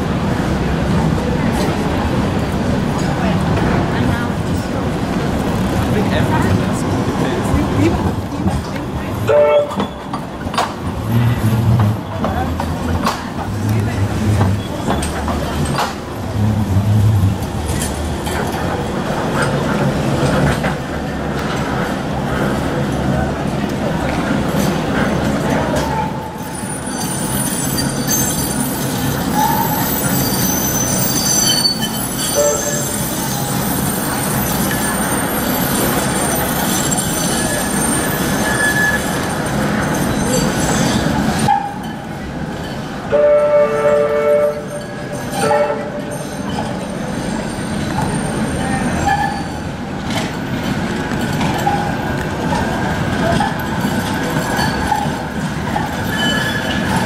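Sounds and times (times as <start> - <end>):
trams running on track: 0.0 - 57.0
two-tone tram horn: 9.3 - 9.9, 32.3 - 33.0, 43.1 - 46.2
wheel squeal: 25.8 - 42.0, 44.5 - 49.7, 54.3 - 57.0.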